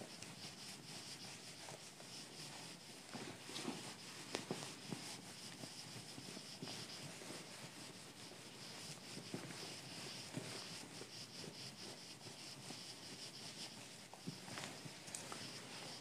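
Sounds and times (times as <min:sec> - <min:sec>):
eraser rubbing on whiteboard: 0:00.0 - 0:16.0.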